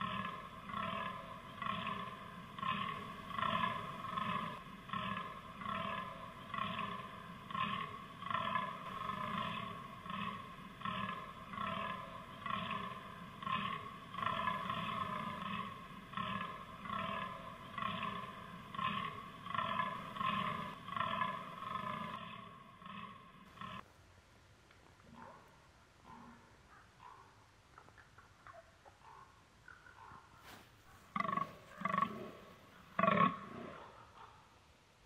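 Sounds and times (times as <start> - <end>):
deer groaning: 0.0 - 23.8, 31.1 - 33.9.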